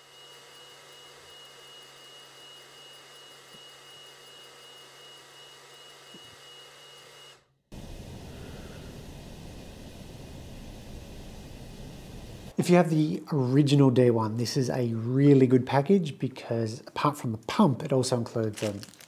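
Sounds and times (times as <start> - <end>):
laser module humming and whining: 7.8 - 12.5
rough hiss: 7.8 - 12.5.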